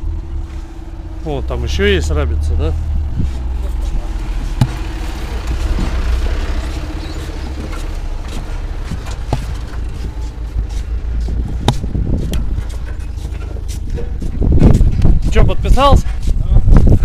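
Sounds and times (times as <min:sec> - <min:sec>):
wind on microphone: 0:02.9 - 0:06.1, 0:08.8 - 0:17.0.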